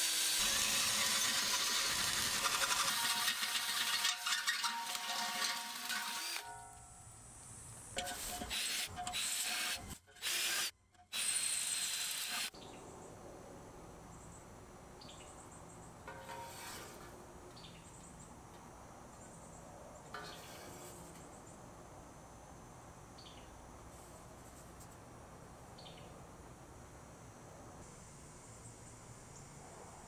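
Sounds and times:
power drill boring through steel: 0:00.0 - 0:06.5
faint brushing noises: 0:16.1 - 0:17.2, 0:20.2 - 0:21.5, 0:23.8 - 0:25.1.

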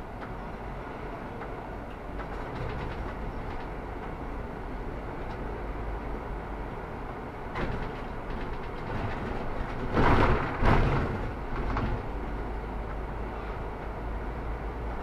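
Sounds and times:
bus running with road rumble: 0:00.0 - 0:15.0
rattling noise: 0:02.1 - 0:03.9, 0:07.5 - 0:12.2.

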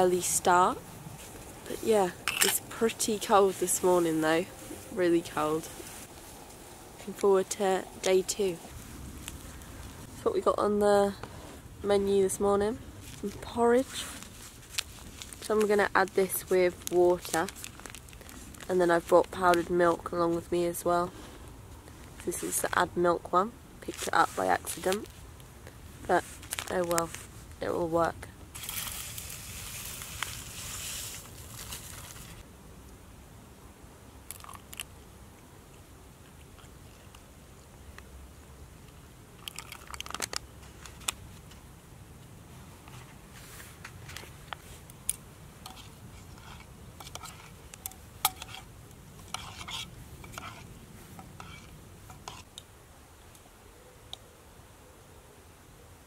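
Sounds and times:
sachet crinkling: 0:13.9 - 0:19.7, 0:26.2 - 0:27.3, 0:28.6 - 0:32.4, 0:39.4 - 0:41.3
spoon stirring in metal pot: 0:45.7 - 0:52.5.

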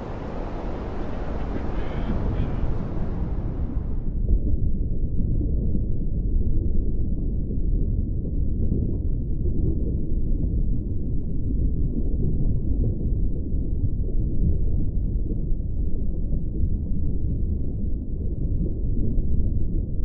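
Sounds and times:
muffled underwater water rush: 0:00.0 - 0:04.2.

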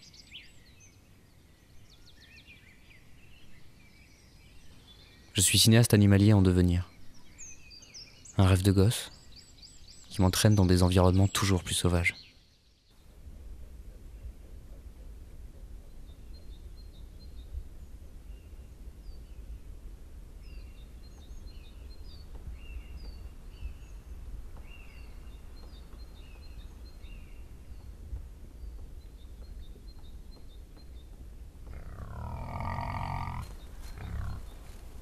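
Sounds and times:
small birds chirping: 0:00.0 - 0:35.0
wild boar grunt: 0:31.6 - 0:34.9.

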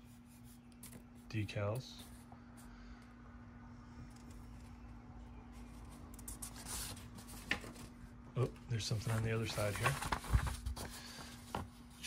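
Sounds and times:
low steady hum: 0:00.0 - 0:12.0
paper sheet rustling: 0:05.9 - 0:12.0.

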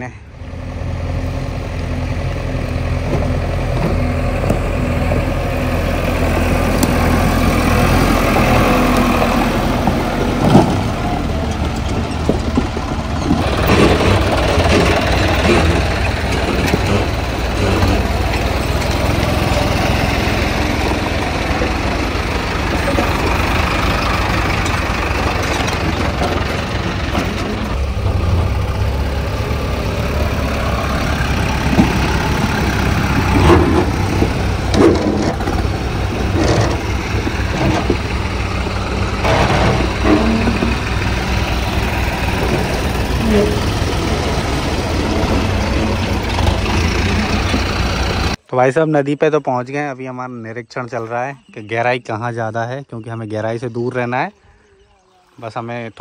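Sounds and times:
tractor diesel engine running: 0:00.0 - 0:48.5
knocks and rattles: 0:08.0 - 0:29.0, 0:30.9 - 0:48.4.

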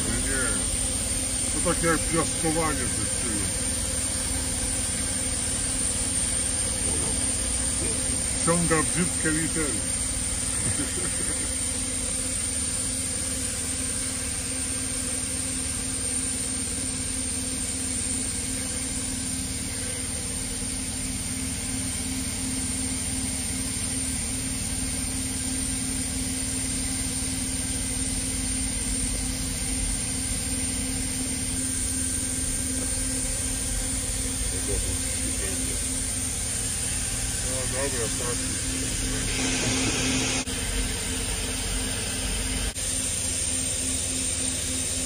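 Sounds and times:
cleaning machine hum and hiss: 0:00.0 - 0:45.0.

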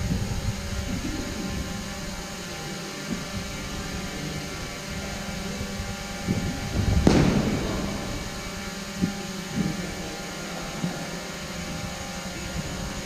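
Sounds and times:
steady low hum: 0:00.0 - 0:13.0
loud thud: 0:07.1 - 0:08.6.

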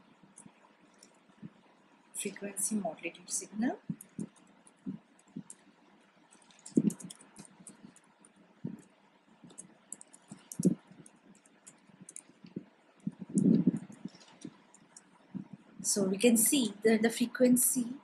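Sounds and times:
typing on computer keyboard: 0:03.9 - 0:05.7, 0:06.3 - 0:15.1.

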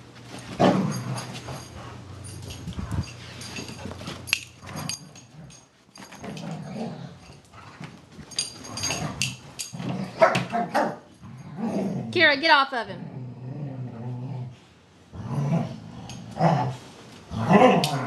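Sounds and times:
dogs scuffling: 0:00.0 - 0:11.0
dogs growling and whining: 0:00.4 - 0:12.2, 0:13.0 - 0:18.0.

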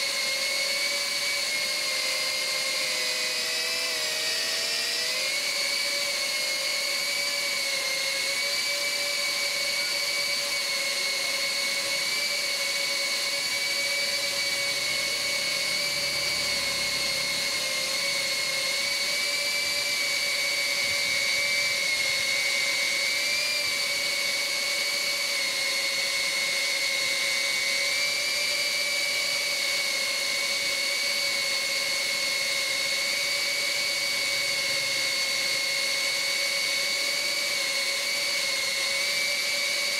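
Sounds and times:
drone propellers whining: 0:00.0 - 0:39.9.

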